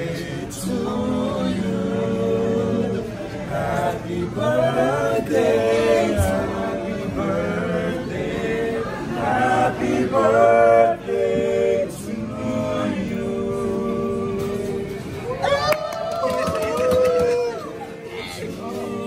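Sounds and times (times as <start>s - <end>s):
men singing a cappella harmony: 0.0s - 15.2s, 18.0s - 19.0s.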